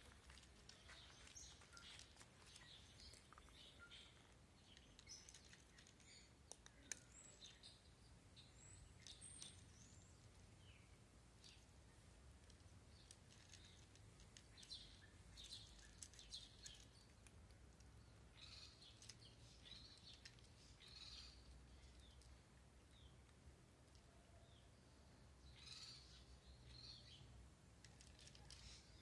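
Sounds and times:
faint bird chirps: 0.0s - 12.0s, 18.0s - 22.3s, 24.0s - 29.0s
low steady background rumble: 0.0s - 29.0s.

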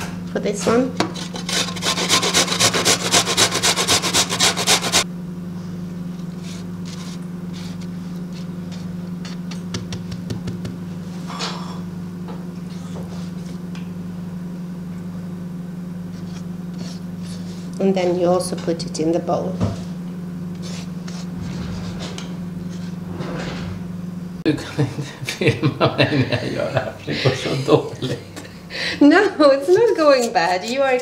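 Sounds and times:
steady low hum: 0.0s - 31.0s
ginger rasping on a grater: 1.2s - 5.0s, 29.6s - 31.0s.

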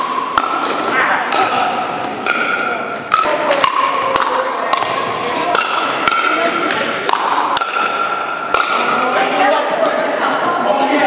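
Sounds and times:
paddles striking plastic ball: 0.0s - 9.0s.

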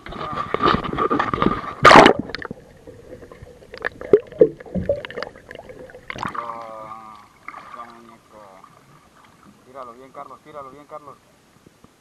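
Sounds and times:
loud splash into water: 1.8s - 2.5s
bubbly blips: 3.2s - 6.5s.

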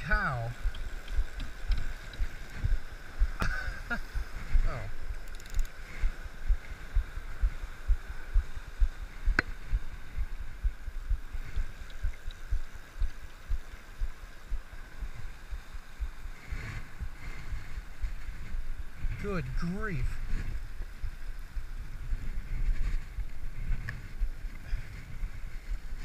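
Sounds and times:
low thumps and rumble: 0.0s - 16.3s
river water rushing: 0.0s - 21.9s.

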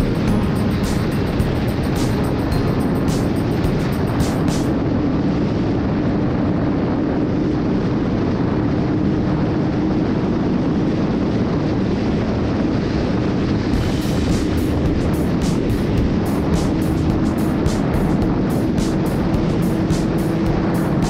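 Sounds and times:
music with quick beat: 0.0s - 4.8s, 13.8s - 21.0s
wind rushing over microphone: 0.0s - 21.0s.

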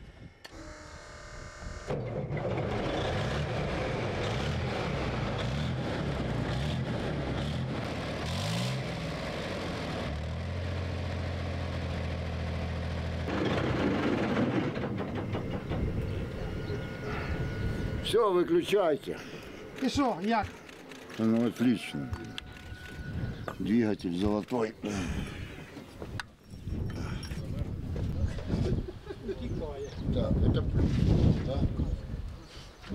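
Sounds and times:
diesel engine starting and idling: 1.9s - 19.8s.

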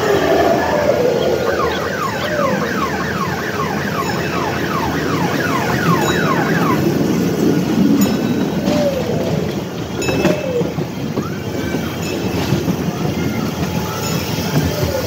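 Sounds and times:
falling electronic chirps: 0.0s - 4.3s
kiddie train ride rumbling: 0.0s - 15.0s.

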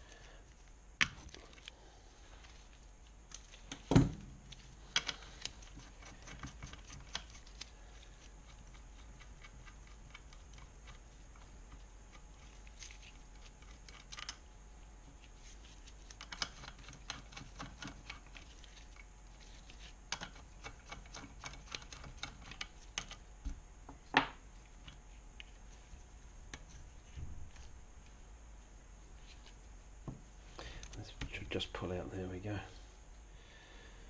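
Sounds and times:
metal parts clicking and tapping: 3.3s - 7.7s, 13.5s - 14.4s, 16.1s - 18.5s, 20.1s - 23.2s.

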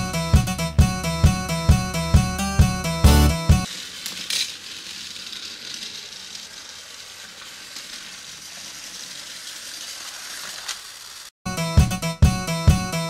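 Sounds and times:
toy train rattling whir: 3.6s - 11.4s.

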